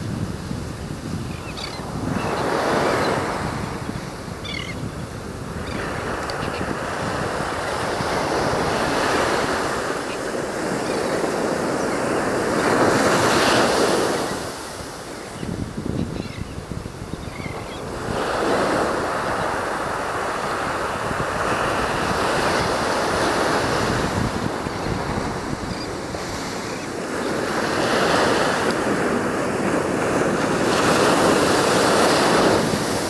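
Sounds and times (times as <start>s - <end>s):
wind rumbling on microphone: 0.0s - 33.0s
sea surf breaking: 5.3s - 15.4s, 17.3s - 33.0s.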